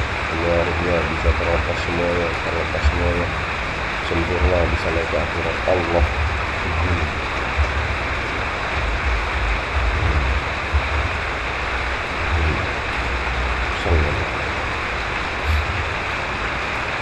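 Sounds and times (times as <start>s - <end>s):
low rumbles: 0.0s - 17.0s
steady rushing hiss: 0.0s - 17.0s.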